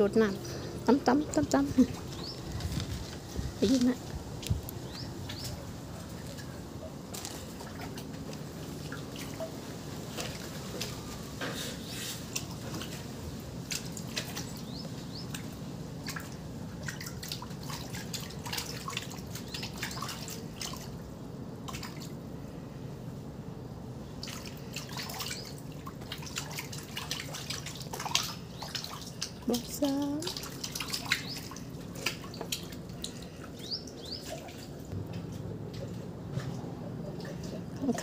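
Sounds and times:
steady low hum: 0:00.0 - 0:10.1, 0:12.3 - 0:38.0
fish plops and splashes: 0:21.6 - 0:22.1, 0:24.2 - 0:29.4, 0:30.2 - 0:34.8.

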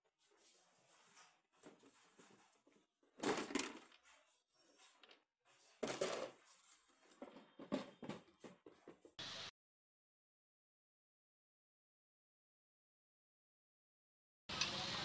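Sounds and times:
handling clunks and rustles: 0:01.6 - 0:09.1.

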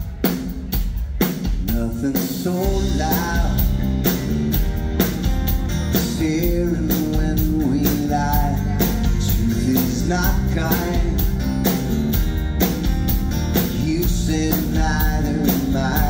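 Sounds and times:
drum kit beat: 0:00.0 - 0:16.0
lead vocal singing: 0:01.6 - 0:03.8, 0:06.0 - 0:11.4, 0:13.6 - 0:16.0.

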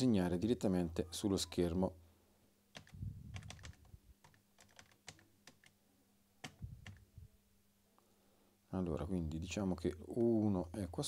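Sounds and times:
keyboard typing clicks: 0:02.8 - 0:05.8.

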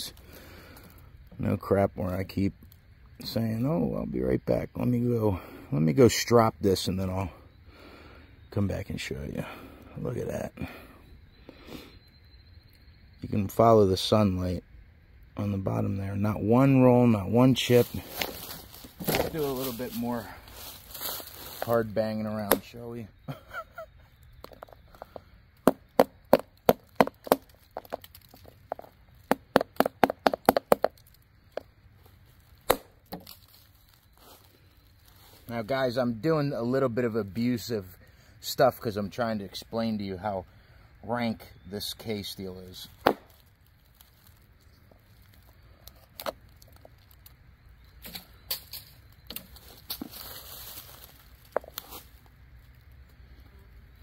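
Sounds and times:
short rustle: 0:17.7 - 0:21.8
knife chopping wood: 0:32.6 - 0:33.3, 0:43.0 - 0:43.4.

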